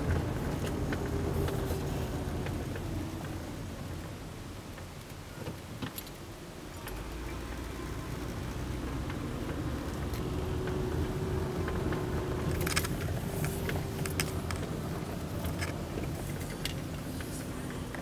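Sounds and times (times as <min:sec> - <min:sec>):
car engine and tyres rumbling: 0:00.0 - 0:18.0
light clicks and rattles: 0:00.0 - 0:18.0.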